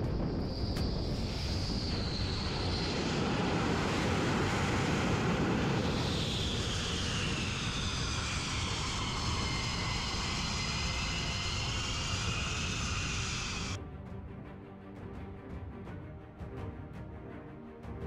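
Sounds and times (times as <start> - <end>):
jet engines whining: 0.0 - 13.8.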